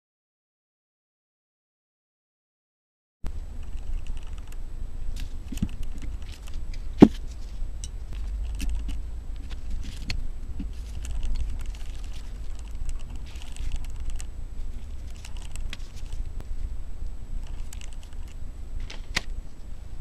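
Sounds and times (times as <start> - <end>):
low steady rumble: 3.3 - 20.0.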